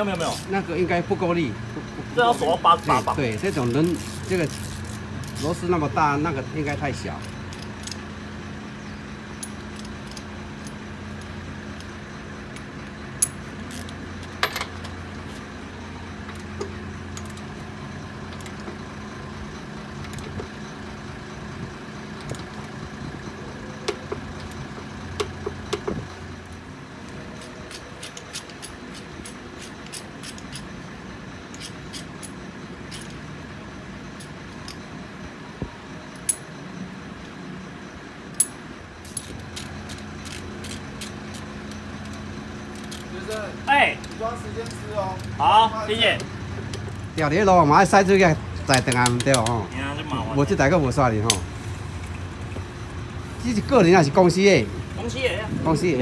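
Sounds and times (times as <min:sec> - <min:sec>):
hand tools clinking: 0:12.5 - 0:15.0, 0:27.2 - 0:30.8, 0:31.5 - 0:33.2, 0:36.2 - 0:36.5, 0:38.4 - 0:45.4.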